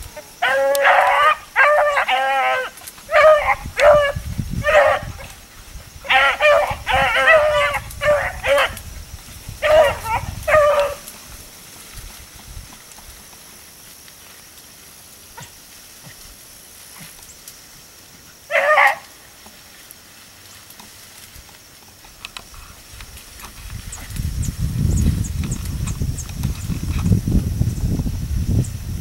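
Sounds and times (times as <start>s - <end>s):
dog baying: 0.1s - 5.4s, 6.0s - 8.8s, 9.6s - 11.1s, 18.5s - 19.1s.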